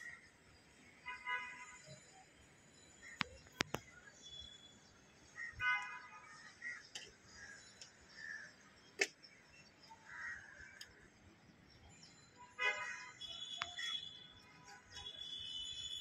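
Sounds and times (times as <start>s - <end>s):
crows cawing: 10.1s - 10.8s.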